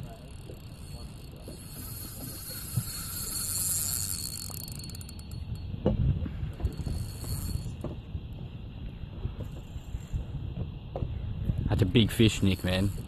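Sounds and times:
fishing reel drag whirring: 0:00.0 - 0:10.6, 0:11.7 - 0:13.0.

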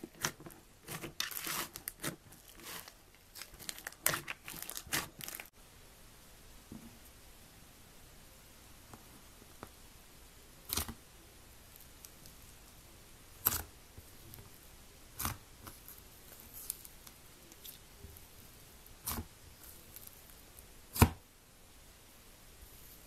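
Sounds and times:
slime squishing by hand: 0:00.0 - 0:05.5.

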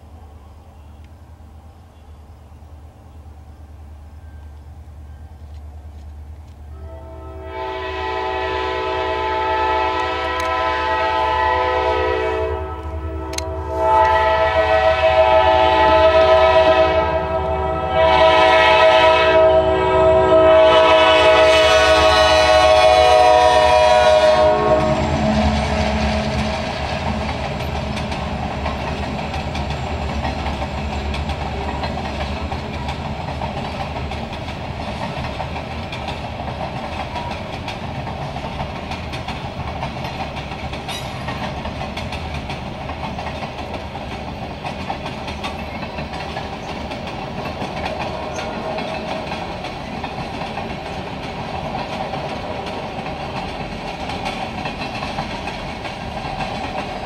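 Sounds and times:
train cars rumbling and clattering: 0:00.0 - 0:57.0
locomotive horn blasts: 0:06.7 - 0:26.7.

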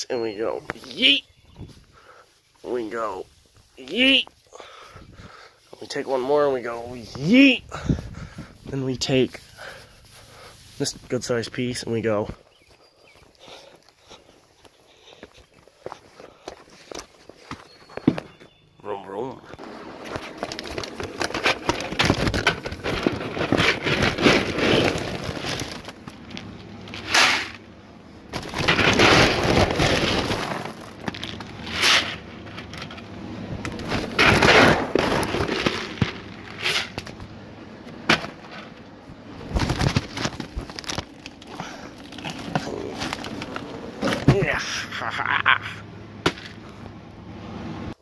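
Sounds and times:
dry kibble rattling in plastic bucket: 0:20.1 - 0:26.0.

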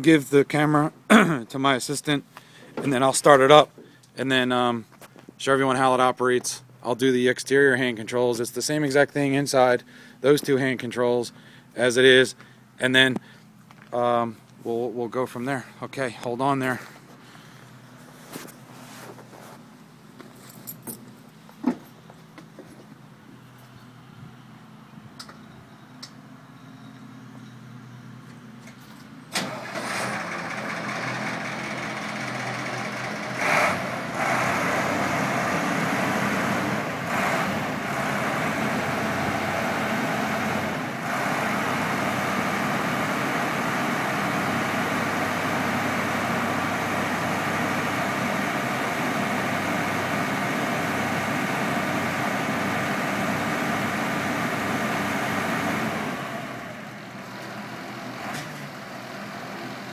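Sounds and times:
truck engine starting and idling: 0:27.7 - 0:59.9.

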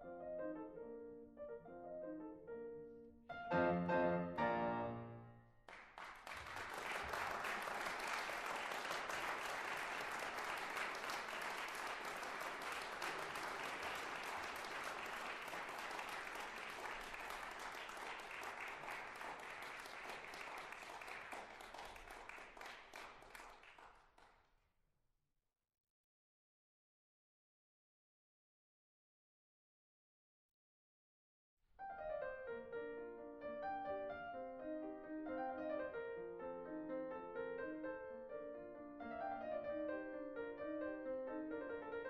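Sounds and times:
piano music: 0:00.0 - 0:05.6, 0:31.8 - 0:42.0
audience applause: 0:05.7 - 0:24.3.

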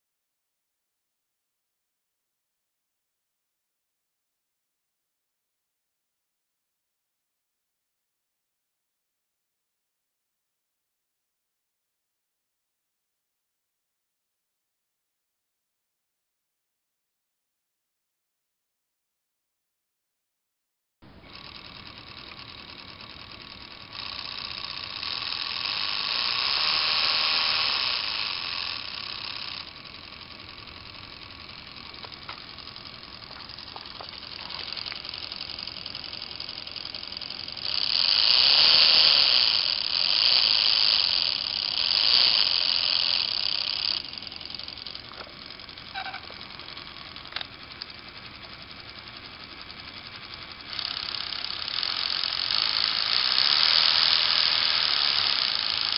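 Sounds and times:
electric motor whirring: 0:21.1 - 0:55.9.

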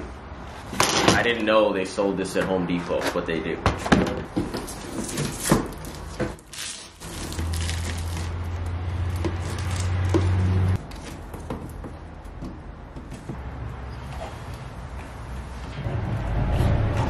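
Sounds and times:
tape handling crinkles: 0:04.6 - 0:11.3.

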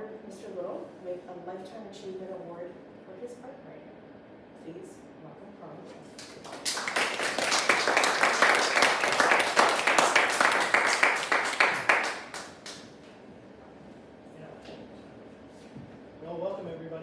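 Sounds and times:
audience applauding: 0:06.2 - 0:12.9.

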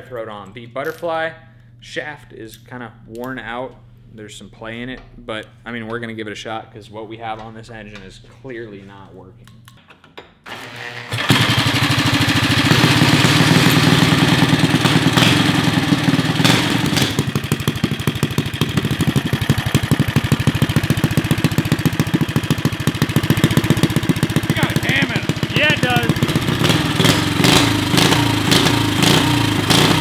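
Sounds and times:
cordless drill spinning engine: 0:10.5 - 0:30.0
small engine running: 0:10.5 - 0:30.0.

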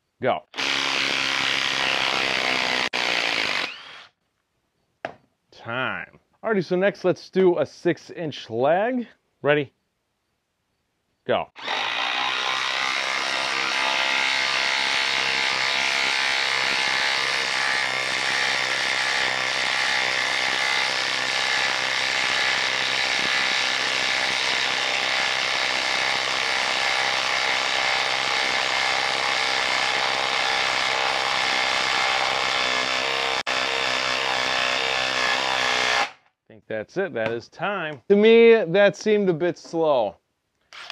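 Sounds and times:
impact driver hammering: 0:11.6 - 0:36.2.

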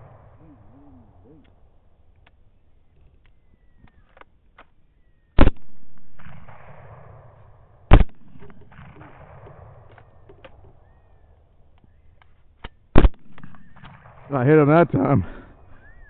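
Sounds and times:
rifle shots with rolling echo: 0:00.0 - 0:02.2, 0:05.4 - 0:16.0.

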